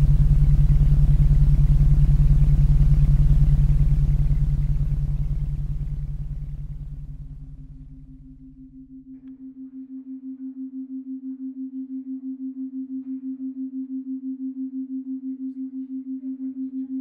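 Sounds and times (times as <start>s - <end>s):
pulsing sustained tone: 0.0s - 17.0s.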